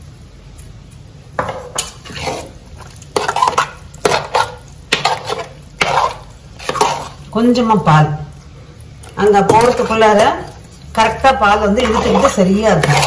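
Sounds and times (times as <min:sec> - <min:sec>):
ladle scraping metal pot: 0:01.4 - 0:07.2, 0:09.4 - 0:13.0.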